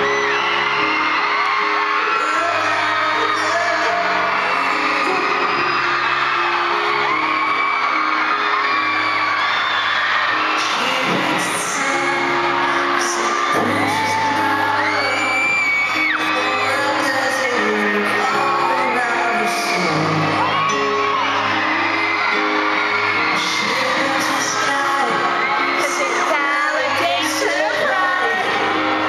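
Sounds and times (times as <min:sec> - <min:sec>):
audience whoops and screams: 0:00.0 - 0:29.0
grand piano: 0:00.0 - 0:29.0
man singing pop ballad: 0:02.1 - 0:05.8, 0:10.5 - 0:21.6, 0:23.2 - 0:29.0.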